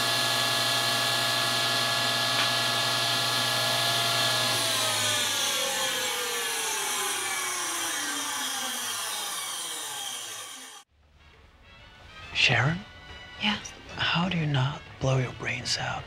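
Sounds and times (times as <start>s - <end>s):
saw blade coasting down whine: 0.0s - 10.9s
table saw running: 0.0s - 10.9s.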